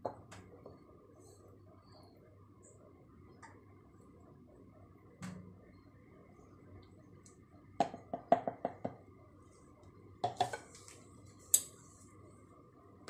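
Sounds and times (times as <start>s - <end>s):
plastic jug knocking and clattering: 7.8s - 9.0s.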